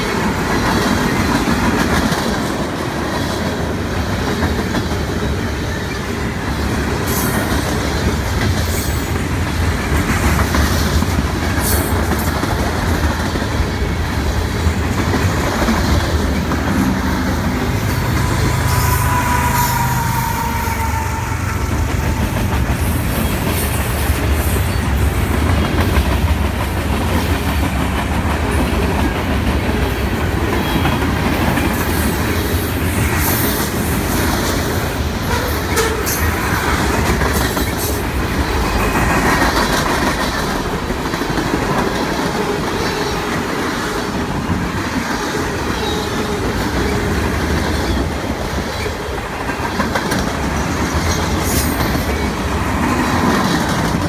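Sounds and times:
freight train wheels rumbling: 0:00.0 - 0:54.0
locomotive engine hum: 0:13.5 - 0:27.0.

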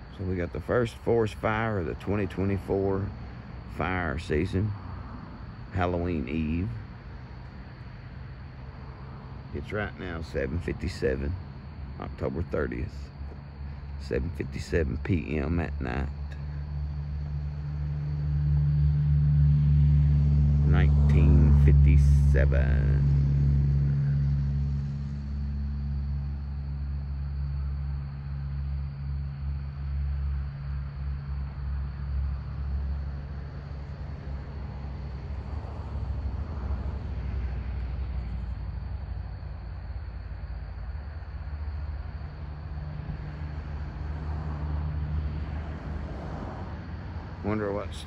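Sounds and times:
vehicle engine idling: 0:00.0 - 0:46.2, 0:47.1 - 0:48.0
faint high whine: 0:05.6 - 0:43.8.

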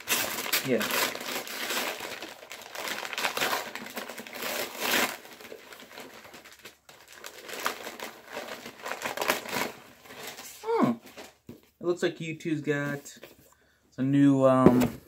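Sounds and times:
wrapping paper crinkling: 0:00.0 - 0:11.4.

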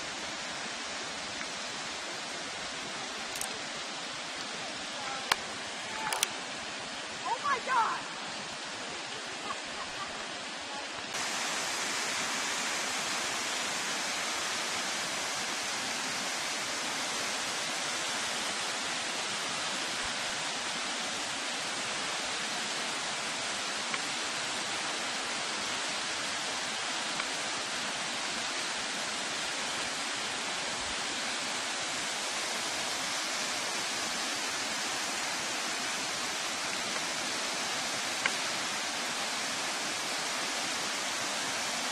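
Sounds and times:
small waterfall rushing: 0:00.0 - 0:41.9.

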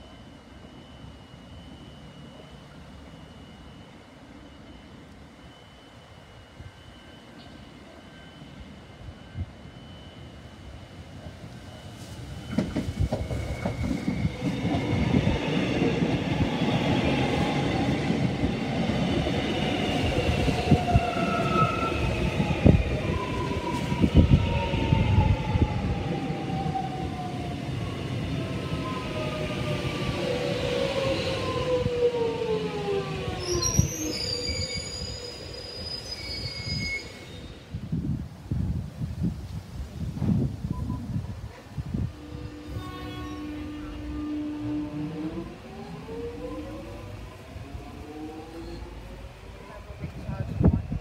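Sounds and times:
train wheels clattering on rails: 0:12.0 - 0:16.6
high wheel squeals: 0:33.3 - 0:37.7.

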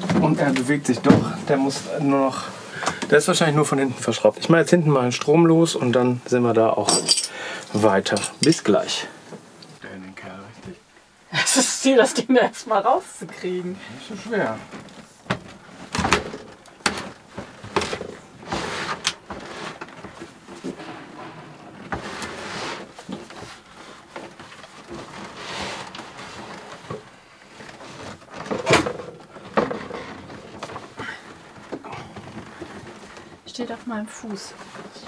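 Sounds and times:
fridge knocking and scraping: 0:28.2 - 0:32.6.

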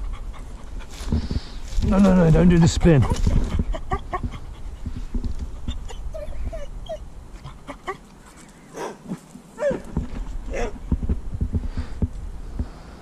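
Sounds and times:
puppy whimpering: 0:02.9 - 0:04.4, 0:05.6 - 0:07.0.

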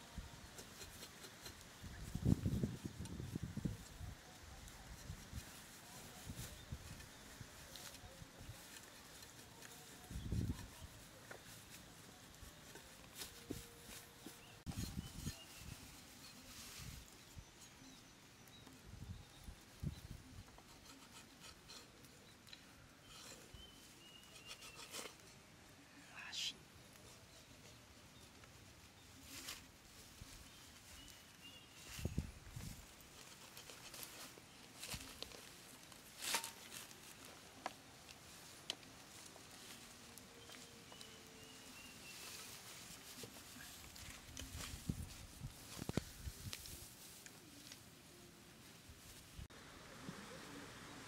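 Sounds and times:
dry straw rustling: 0:00.2 - 0:49.5
knife scraping charred skin: 0:20.6 - 0:22.2, 0:23.0 - 0:25.3.

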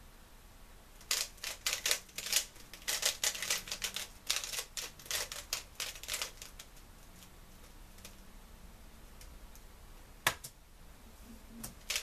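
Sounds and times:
plastic puzzle cube clicks: 0:01.0 - 0:06.7.

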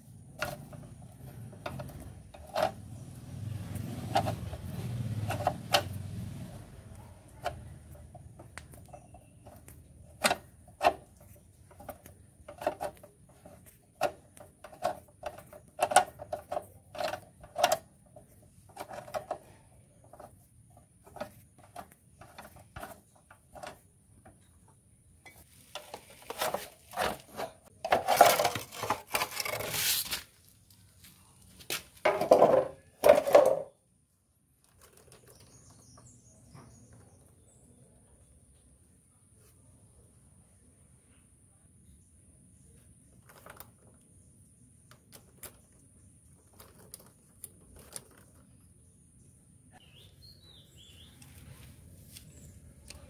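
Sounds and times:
screwdriver clicking and scraping on metal: 0:00.0 - 0:03.0, 0:03.8 - 0:06.0, 0:07.3 - 0:24.6.

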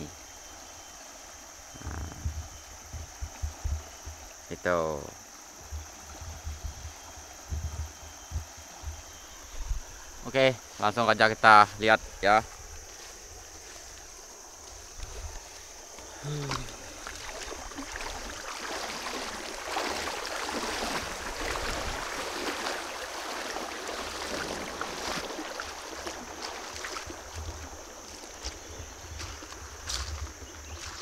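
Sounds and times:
water splashing in a river: 0:00.0 - 0:10.7, 0:12.1 - 0:31.0
high drone of insects: 0:00.0 - 0:31.0.

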